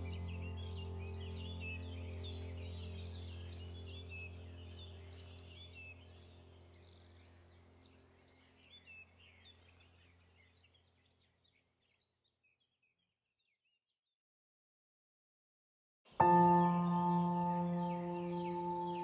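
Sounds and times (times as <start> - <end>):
low ambient drone: 0.0 - 9.7, 16.2 - 19.0
bird chirps: 0.0 - 13.8, 16.2 - 19.0.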